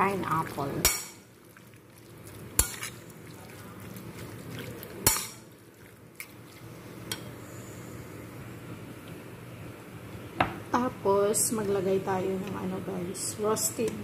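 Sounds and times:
wet mixing of meat: 0:00.0 - 0:06.9.

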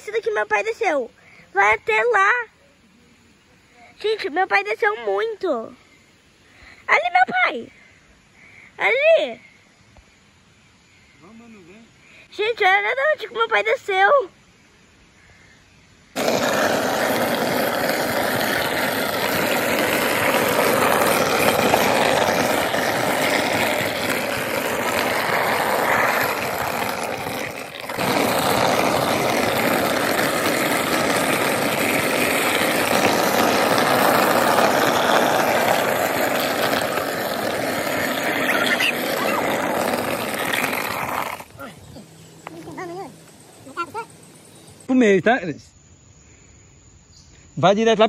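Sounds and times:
cart wheels grinding on asphalt: 0:16.1 - 0:44.9.

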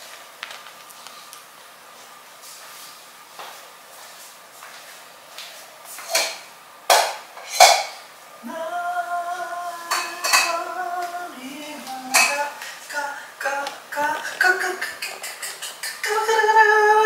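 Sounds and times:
person singing long notes: 0:08.4 - 0:17.0.

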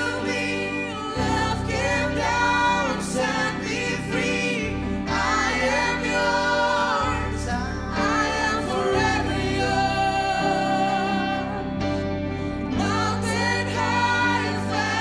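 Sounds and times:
singers holding long notes: 0:00.0 - 0:15.0
worship band playing: 0:00.0 - 0:15.0.

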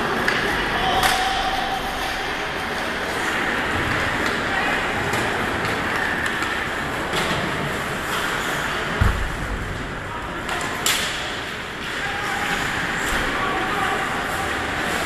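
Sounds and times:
spectators talking: 0:00.0 - 0:15.0
deep thump: 0:09.0 - 0:09.8.

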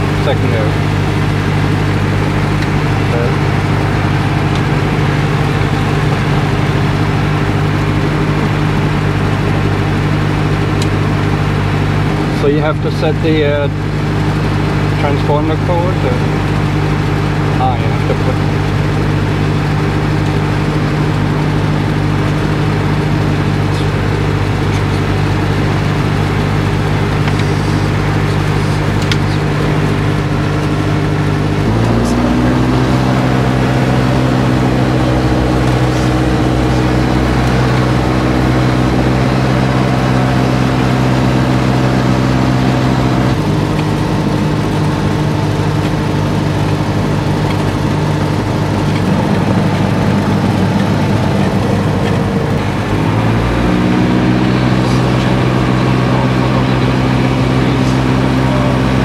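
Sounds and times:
aircraft engine running: 0:00.0 - 0:59.0.

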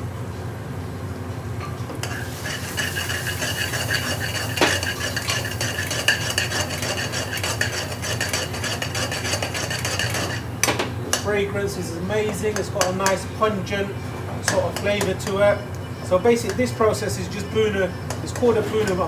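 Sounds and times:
metal ladle scraping a pan: 0:02.0 - 0:10.5
onions sizzling in oil: 0:02.0 - 0:10.5.

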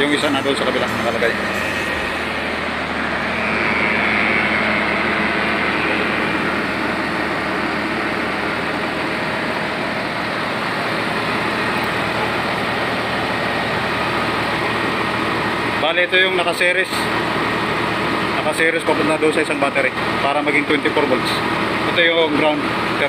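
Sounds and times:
faint high whine: 0:00.0 - 0:17.2
diesel engine running: 0:00.0 - 0:18.5.

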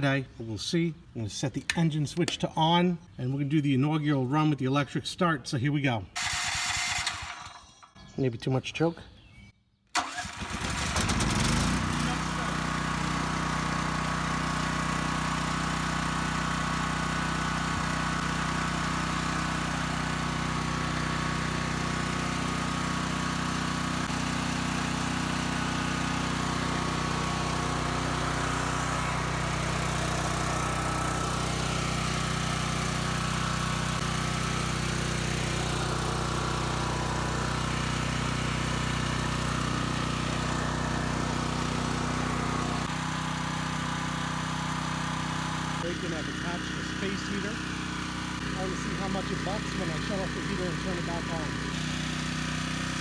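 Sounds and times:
generator engine running: 0:06.2 - 0:07.6, 0:10.0 - 0:53.0.

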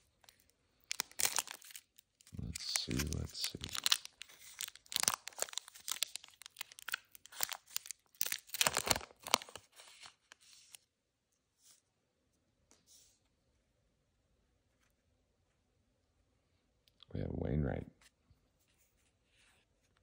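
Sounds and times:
cards rustling: 0:00.2 - 0:10.8
foil wrapper tearing and crinkling: 0:00.3 - 0:10.4.

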